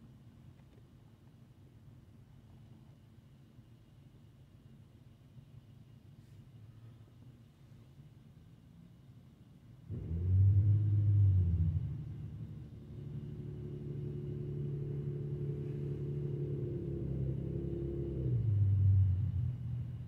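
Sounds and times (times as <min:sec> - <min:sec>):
vehicle engine rumbling: 0:09.9 - 0:20.0.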